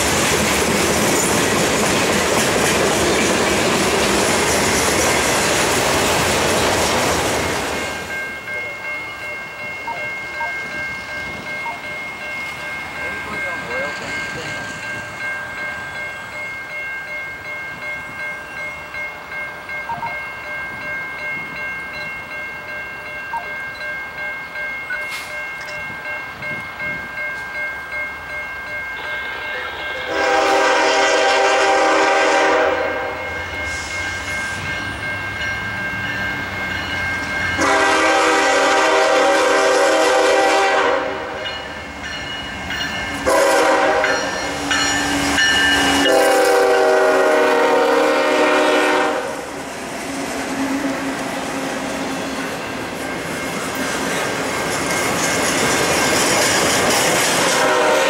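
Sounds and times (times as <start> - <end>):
train air horn blasts: 29.0 - 33.2, 37.6 - 41.4, 43.2 - 44.3, 45.8 - 49.4, 57.4 - 58.0.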